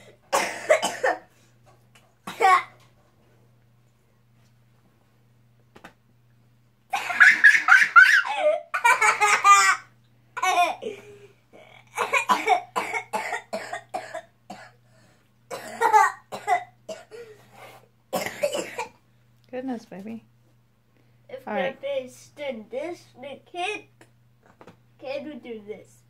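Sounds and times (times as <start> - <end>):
boy coughing and laughing: 0.0 - 1.3, 2.2 - 2.8, 6.9 - 14.8, 15.5 - 17.4, 18.1 - 19.0.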